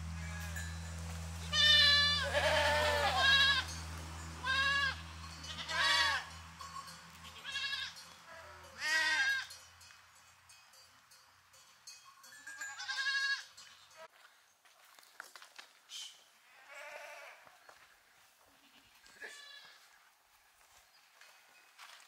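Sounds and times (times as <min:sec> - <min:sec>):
goats and sheep bleating: 0:00.0 - 0:00.8, 0:01.4 - 0:09.6, 0:12.5 - 0:14.1, 0:16.4 - 0:17.9, 0:18.5 - 0:20.0.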